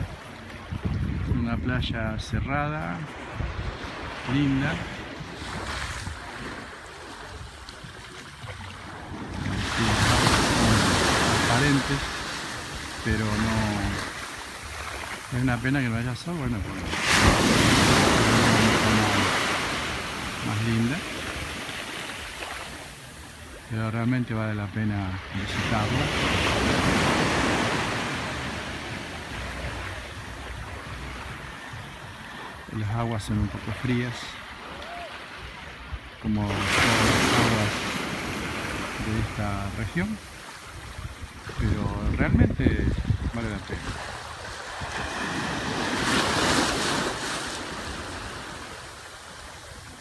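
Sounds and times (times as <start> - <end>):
small waves washing onto sand: 0.0 - 50.0.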